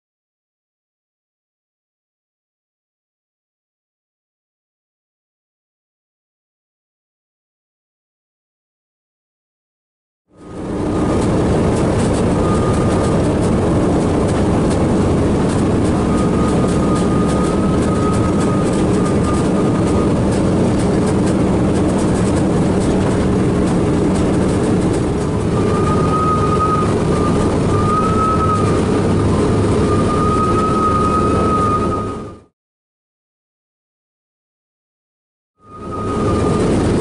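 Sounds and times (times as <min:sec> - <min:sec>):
thin high squeal: 0:10.4 - 0:14.0, 0:14.6 - 0:23.2, 0:24.2 - 0:32.4, 0:35.6 - 0:37.0
aircraft engines running: 0:10.4 - 0:32.5, 0:35.6 - 0:37.0.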